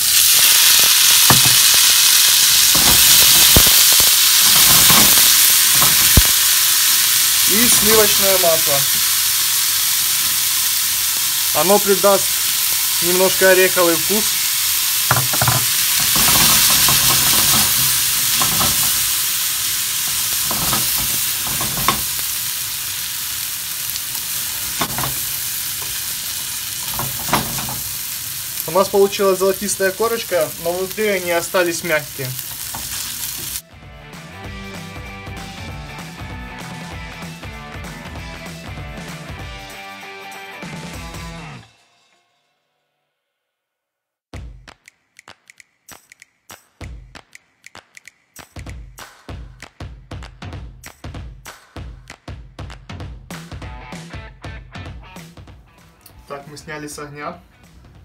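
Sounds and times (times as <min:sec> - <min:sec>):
loud sizzling in frying pan: 0:00.0 - 0:41.4
wooden spatula knocking pan: 0:01.3 - 0:01.7, 0:04.5 - 0:06.2, 0:15.1 - 0:19.1, 0:20.1 - 0:22.2, 0:24.7 - 0:26.0, 0:26.8 - 0:27.9.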